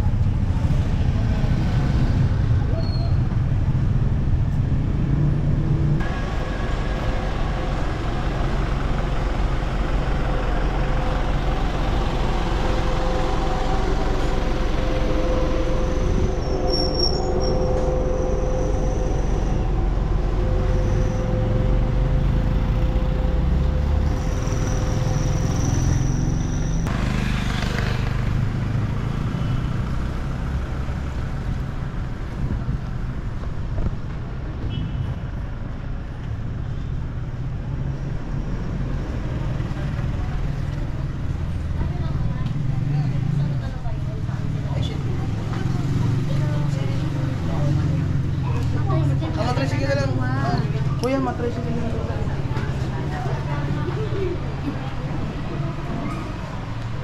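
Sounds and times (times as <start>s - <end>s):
vehicle engines running: 0.0s - 57.0s
held engine tone: 6.0s - 30.0s.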